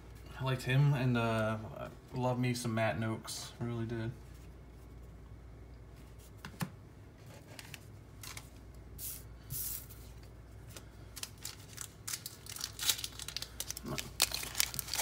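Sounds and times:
cardboard cards rustling: 0:07.3 - 0:08.6, 0:10.0 - 0:15.0.

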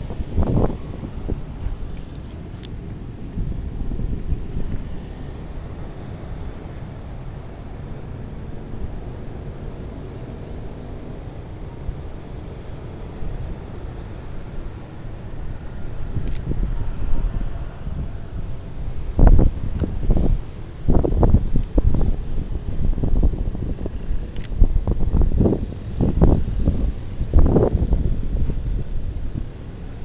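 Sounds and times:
low street rumble: 0:00.0 - 0:30.0.

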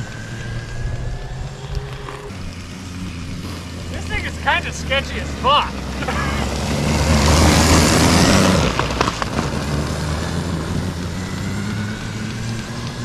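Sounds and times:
low electric hum: 0:00.0 - 0:06.0
snow bike track hissing: 0:00.0 - 0:13.0.

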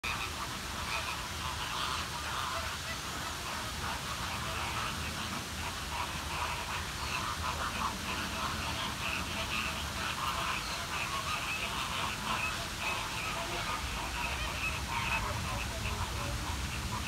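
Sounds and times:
flamingos honking and chattering: 0:00.0 - 0:17.0
waterfall rushing: 0:00.0 - 0:17.0.

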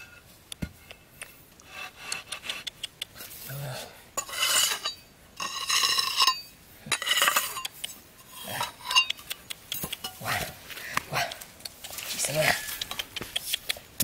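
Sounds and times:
machete scraping on stone: 0:04.2 - 0:09.2.

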